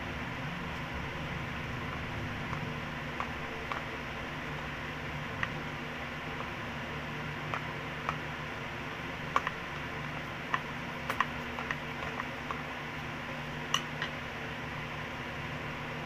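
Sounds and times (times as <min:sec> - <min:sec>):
electric fan hum: 0:00.0 - 0:16.0
stick tapping plastic: 0:01.9 - 0:03.9, 0:07.4 - 0:08.3, 0:09.3 - 0:12.7, 0:13.6 - 0:14.2.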